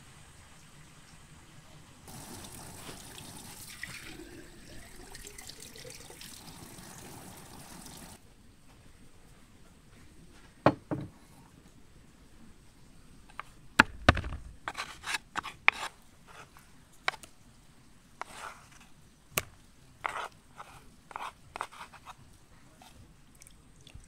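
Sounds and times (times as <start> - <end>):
wooden spoon scraping bowl: 14.7 - 16.5, 18.2 - 18.8, 20.0 - 22.2.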